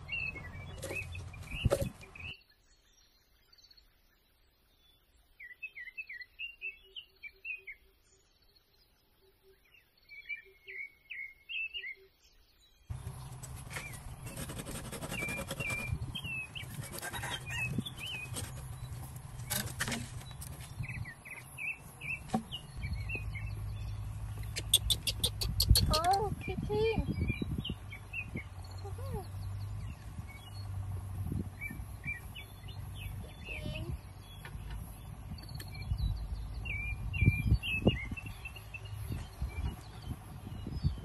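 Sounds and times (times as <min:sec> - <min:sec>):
small birds chirping: 0:00.0 - 0:41.0
knife cutting bamboo: 0:13.0 - 0:16.0, 0:16.6 - 0:18.8.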